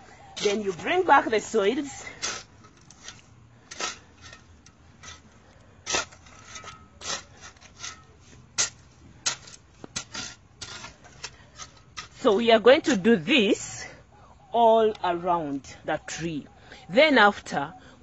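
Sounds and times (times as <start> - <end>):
metal spade scraping soil: 0.0 - 14.0.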